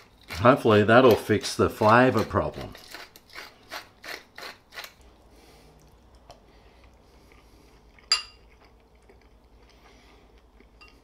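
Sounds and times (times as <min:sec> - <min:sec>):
metal spoon clinking ceramic bowl: 0:08.1 - 0:08.4.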